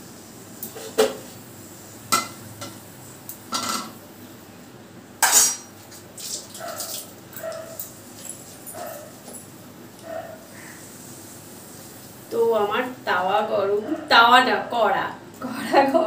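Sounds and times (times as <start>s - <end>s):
metal dishes clattering: 3.5s - 4.0s, 5.2s - 5.7s.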